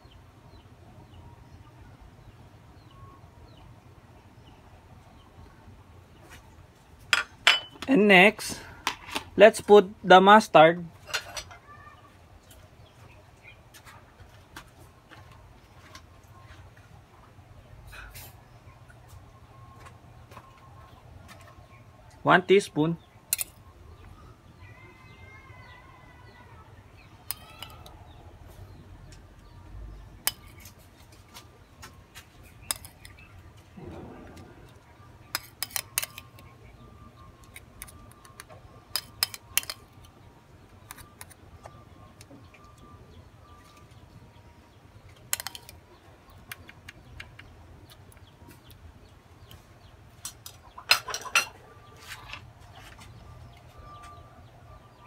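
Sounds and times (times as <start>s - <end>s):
metal spoon clinking on plate: 7.1s - 7.9s, 23.3s - 23.6s, 32.6s - 33.2s, 35.3s - 36.5s, 37.8s - 39.8s, 45.3s - 45.8s.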